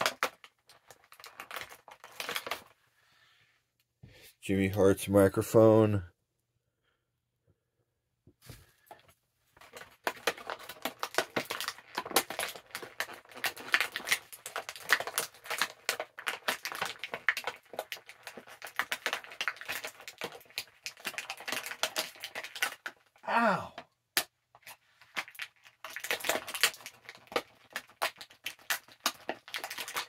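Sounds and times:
plastic packaging crinkling: 0.0 - 2.8, 9.6 - 23.2, 24.5 - 30.0.

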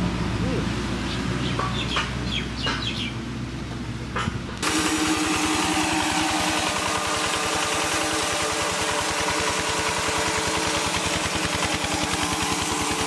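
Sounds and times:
crusher machine humming and pulsing: 4.6 - 13.0.

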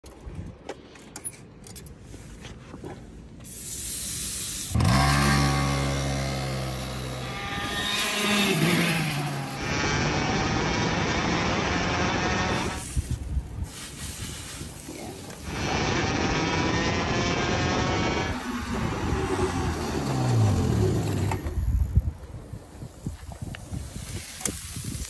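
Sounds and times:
go-kart engine running: 4.7 - 12.8, 15.4 - 22.0.

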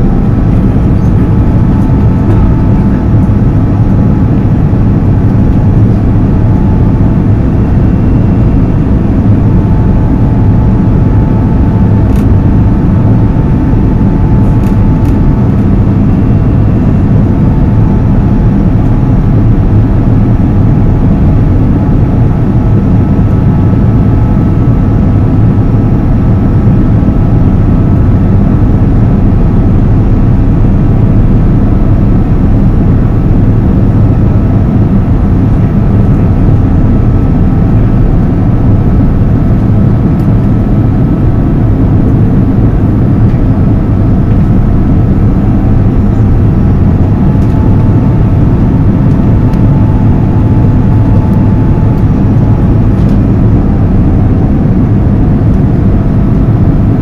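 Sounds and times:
air rushing over fuselage: 0.0 - 57.0
faint steady whine: 0.0 - 57.0
jet engines in aircraft cabin: 0.0 - 57.0.

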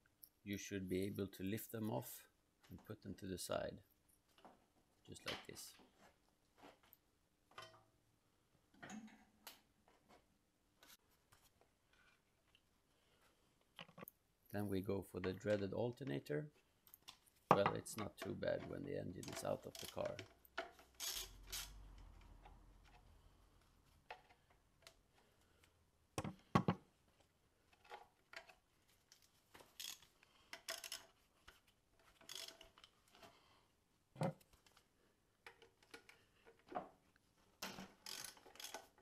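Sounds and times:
ratchet wrench clicking: 29.8 - 30.0, 38.1 - 38.9.

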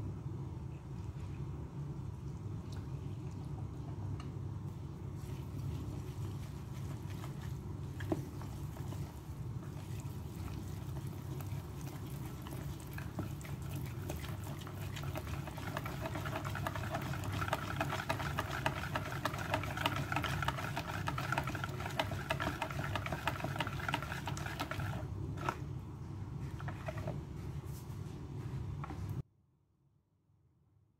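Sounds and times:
whisk beating batter in bowl: 5.0 - 25.8, 26.4 - 27.5.

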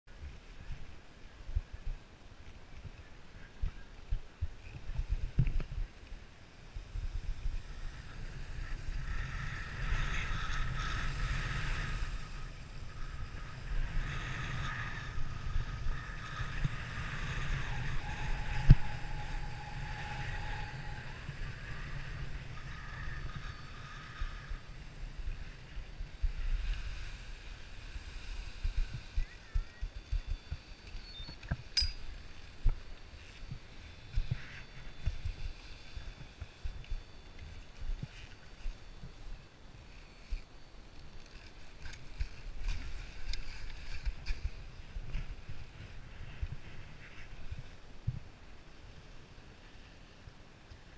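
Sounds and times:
wind buffeting microphone: 0.1 - 39.6.

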